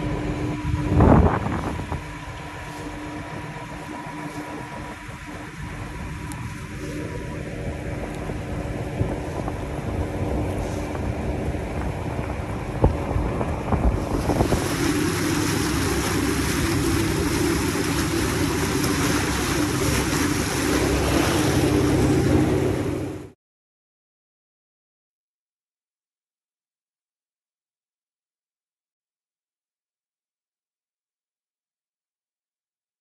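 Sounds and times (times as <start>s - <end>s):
wind on microphone: 0.0s - 23.3s
boat engine running: 0.0s - 23.4s
rush of wake water: 0.0s - 23.4s.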